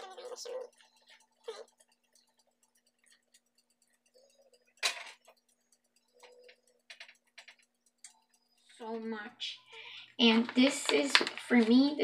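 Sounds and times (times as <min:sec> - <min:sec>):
spatula tapping and scraping pan: 0:00.0 - 0:11.9
frying pan clinking on grate: 0:04.8 - 0:05.2.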